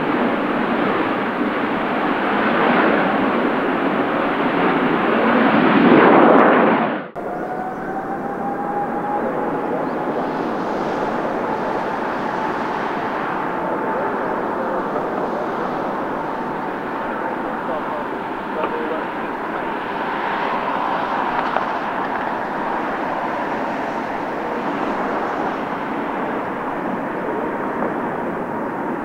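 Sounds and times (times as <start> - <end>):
jet engine noise: 0.0 - 29.0
faint rising whine: 7.1 - 28.5.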